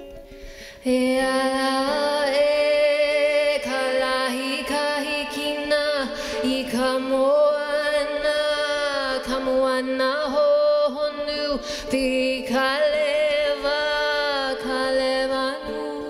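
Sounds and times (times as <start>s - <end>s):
ukulele: 0.0s - 16.0s
woman chanting: 0.9s - 16.0s.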